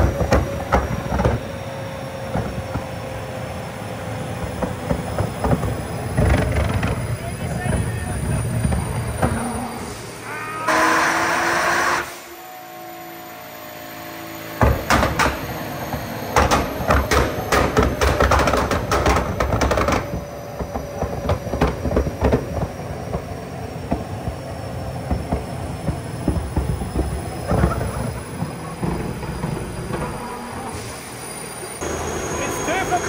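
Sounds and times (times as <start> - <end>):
exhaust popping and banging: 0.0 - 1.5, 4.4 - 9.6, 14.6 - 30.3
car engine revving: 3.4 - 12.3.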